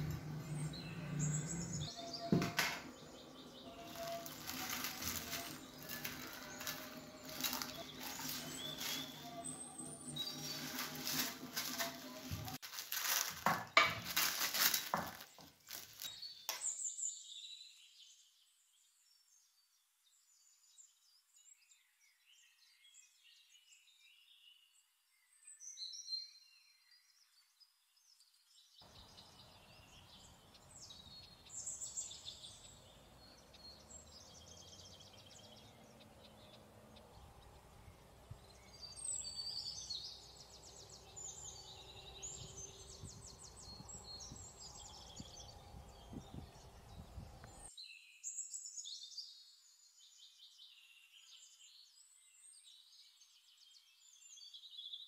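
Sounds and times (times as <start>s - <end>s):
high bird chirps and song: 0.0s - 55.0s
cling film crackling: 3.8s - 9.5s, 10.2s - 16.6s.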